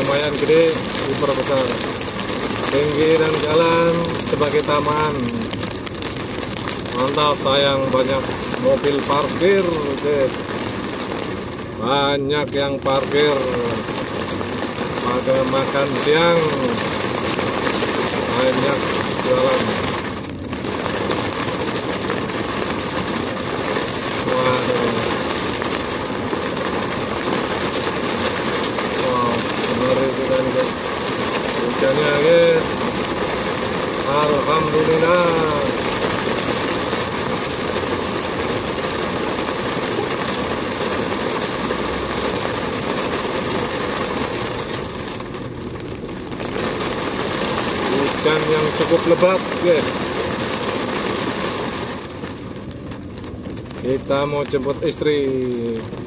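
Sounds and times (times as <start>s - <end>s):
heavy rain drumming on car roof: 0.0s - 56.0s
tyres hissing on wet road: 0.0s - 56.0s.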